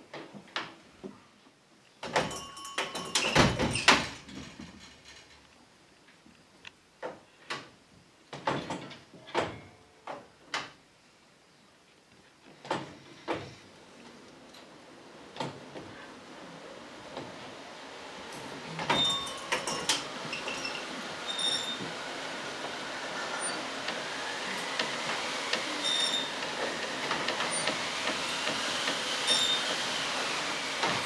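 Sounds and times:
clattering with brief ringing: 0:02.2 - 0:05.4, 0:18.9 - 0:21.8
sharp knocks and clacks: 0:26.4 - 0:29.1.

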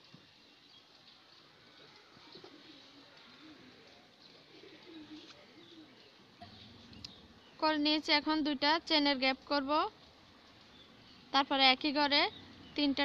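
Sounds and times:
dove cooing: 0:01.4 - 0:07.4.

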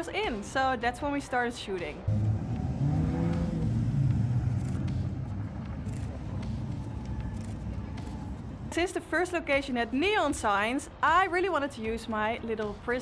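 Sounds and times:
vehicle driving past: 0:02.1 - 0:08.8.

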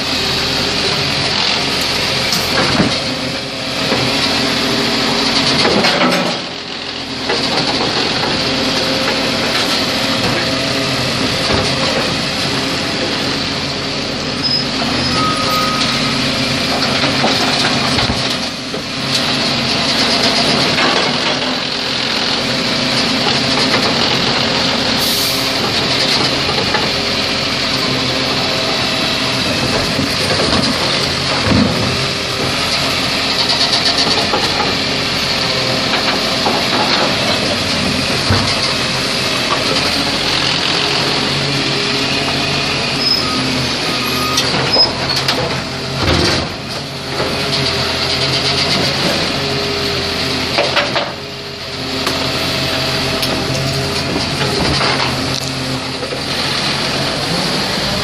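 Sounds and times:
garbage truck running: 0:00.0 - 0:58.0
hydraulic hiss: 0:25.0 - 0:25.4.

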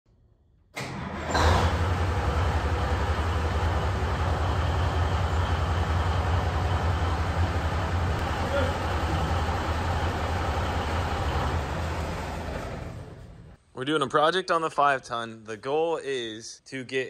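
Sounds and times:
diesel truck engine running: 0:00.8 - 0:13.6.

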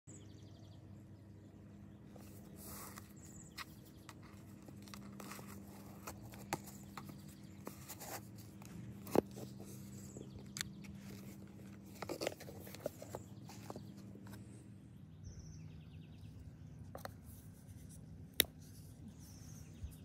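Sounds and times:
steady low hum: 0:00.1 - 0:20.0
cardboard box lid opening: 0:02.5 - 0:14.0.

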